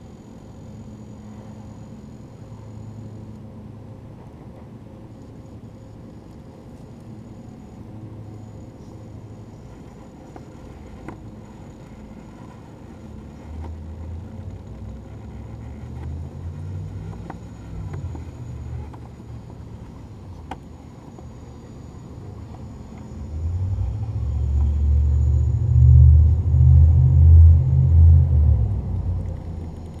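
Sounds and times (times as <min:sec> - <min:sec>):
toy car motor humming: 0:08.3 - 0:26.0.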